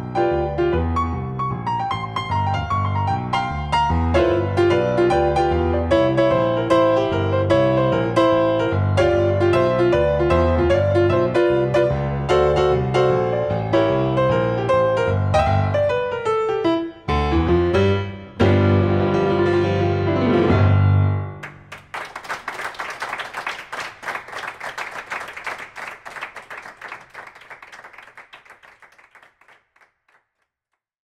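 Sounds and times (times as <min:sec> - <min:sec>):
blues piano playing: 0:00.0 - 0:21.9
audience applause: 0:21.4 - 0:29.9.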